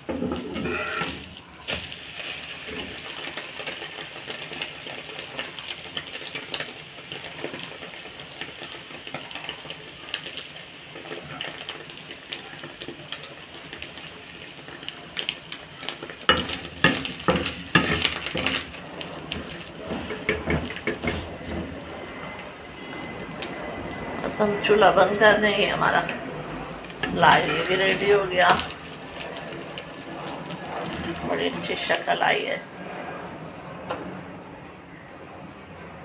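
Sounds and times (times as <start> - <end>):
bread sizzling in a pan: 0.0 - 24.0, 26.8 - 32.2
metal spatula scraping a pan: 0.1 - 1.9, 16.3 - 21.7, 27.0 - 28.8.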